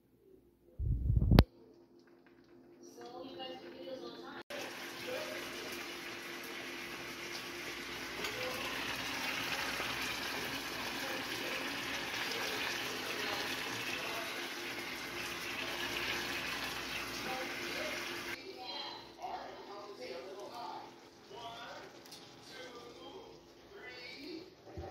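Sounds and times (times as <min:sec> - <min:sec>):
fish sizzling in butter: 0:04.5 - 0:18.4.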